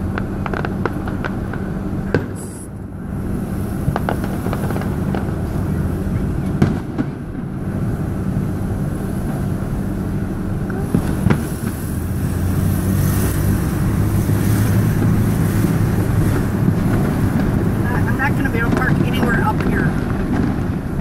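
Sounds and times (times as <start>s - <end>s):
car engine and road noise: 0.0s - 21.0s
sharp bangs: 3.8s - 7.8s, 10.8s - 21.0s.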